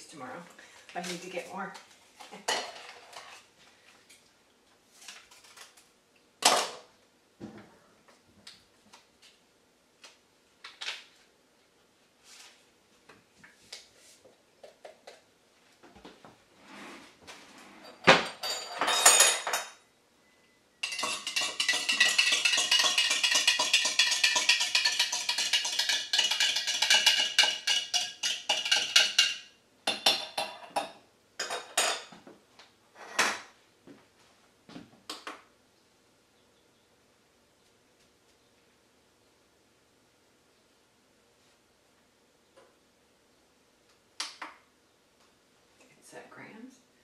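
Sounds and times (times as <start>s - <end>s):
dishes clattering: 2.4s - 3.0s, 17.8s - 19.8s, 20.8s - 32.2s
dishes and utensil clinking: 2.4s - 3.3s, 17.8s - 19.8s, 20.8s - 32.2s
background music with wood-block beat: 20.9s - 29.1s.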